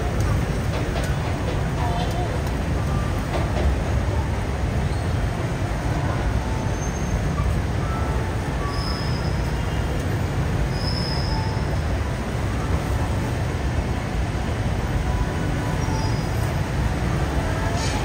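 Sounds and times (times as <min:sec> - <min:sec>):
metro train rumbling: 0:00.0 - 0:18.0
train wheels squealing: 0:06.6 - 0:10.0, 0:10.7 - 0:11.8, 0:15.6 - 0:16.7.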